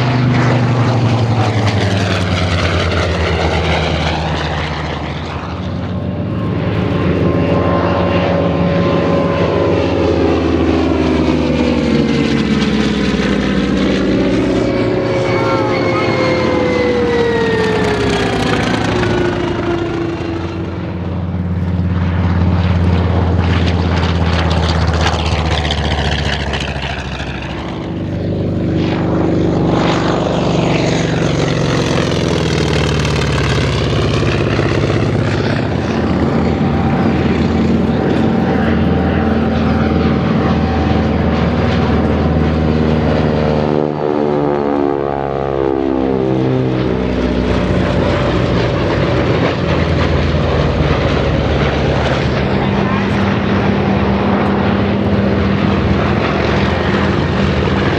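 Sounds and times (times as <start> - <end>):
propeller planes passing low: 0.0 - 57.9.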